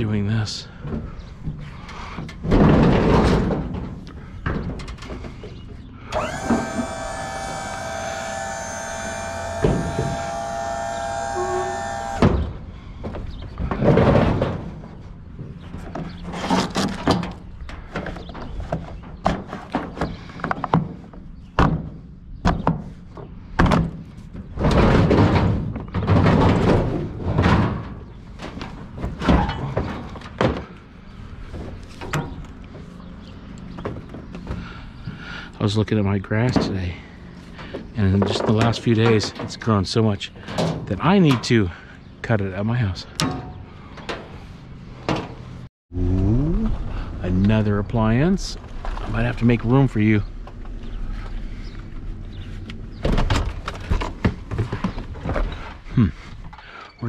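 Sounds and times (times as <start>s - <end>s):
sheet-metal cabinet thunks and scrapes: 2.2s - 5.4s, 13.3s - 15.0s, 23.6s - 30.6s.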